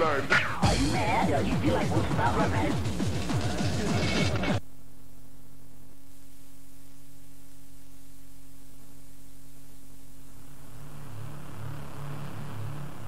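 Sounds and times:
pulsing bass pattern: 0:00.0 - 0:04.6
low drone tones: 0:10.2 - 0:13.0.

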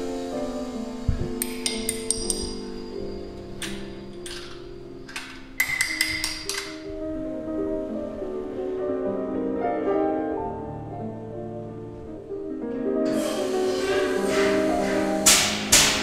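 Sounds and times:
rushing hiss: 0:00.0 - 0:05.5, 0:13.1 - 0:16.0
slow piano music: 0:00.0 - 0:16.0.

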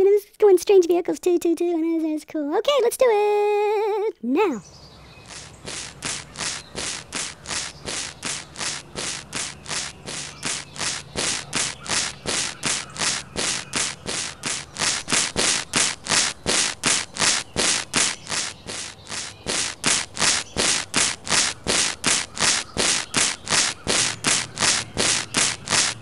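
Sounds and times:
scissors snipping: 0:05.3 - 0:26.0.

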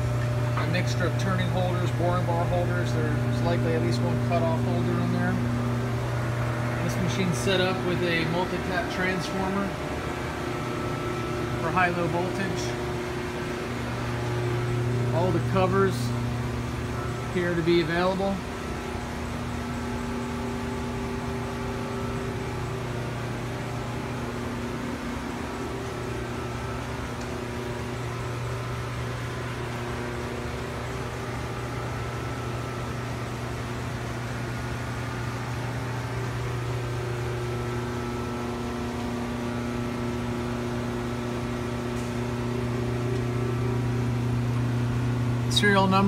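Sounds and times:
low electrical hum: 0:00.0 - 0:46.0.

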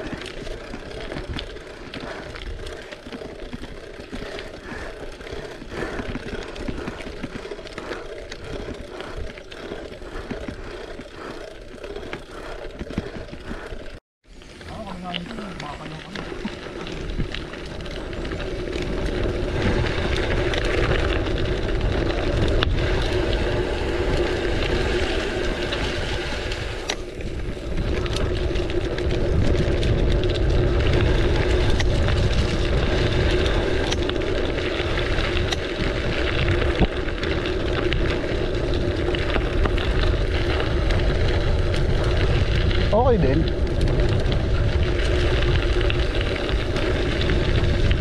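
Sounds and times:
bike tyres rolling on dirt: 0:00.0 - 0:48.0
wind on microphone: 0:15.2 - 0:48.0.

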